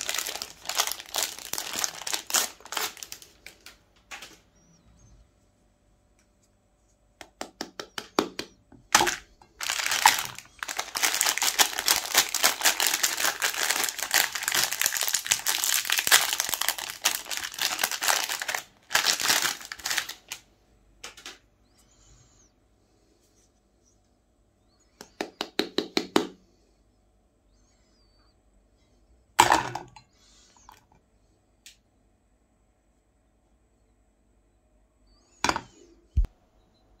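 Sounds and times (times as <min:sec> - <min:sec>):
plastic wrapper crinkling: 0:00.0 - 0:04.4, 0:08.9 - 0:21.4.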